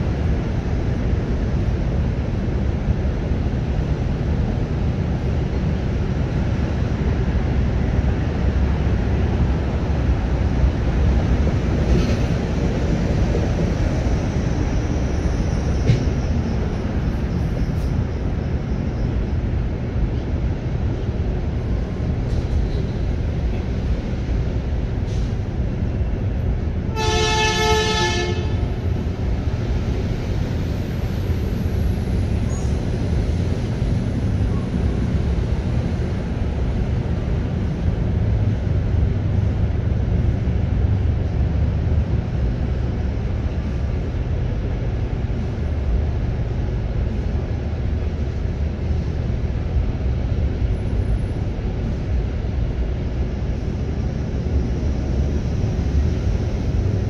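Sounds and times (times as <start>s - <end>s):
two-note vehicle horn: 26.9s - 28.6s.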